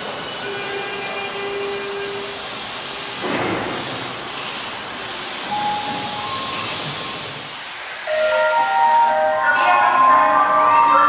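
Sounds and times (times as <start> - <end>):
electric train hum: 0.0 - 11.0
compressed air hiss: 1.0 - 9.0.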